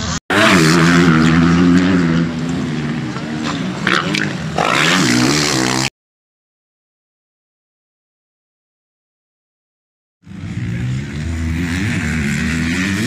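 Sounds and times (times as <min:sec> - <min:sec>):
dirt bike engine revving: 0:00.0 - 0:05.9, 0:10.2 - 0:13.0.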